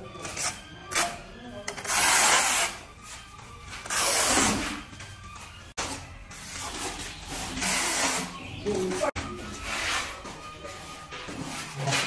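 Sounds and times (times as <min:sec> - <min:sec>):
background music: 0:00.0 - 0:12.0
trowel scraping tile adhesive: 0:00.2 - 0:02.8, 0:07.5 - 0:08.4.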